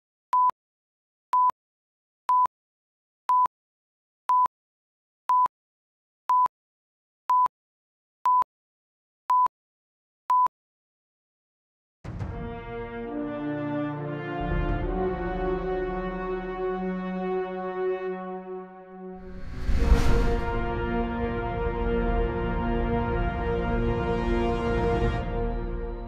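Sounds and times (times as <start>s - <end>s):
music: 12.1s - 26.0s.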